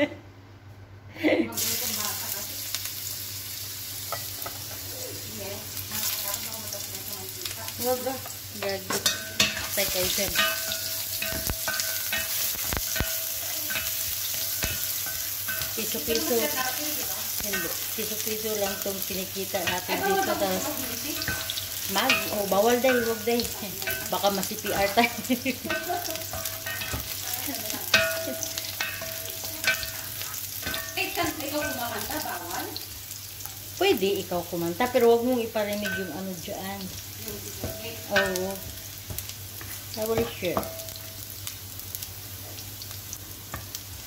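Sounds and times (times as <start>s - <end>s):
oil sizzling in a pot: 1.5s - 44.0s
spatula knocking against pan: 8.6s - 16.6s, 18.5s - 32.2s, 37.6s - 41.1s.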